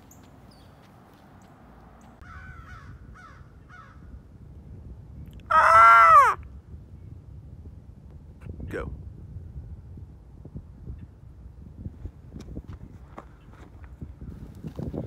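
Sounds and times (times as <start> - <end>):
crow cawing: 2.2 - 4.0, 5.5 - 6.4.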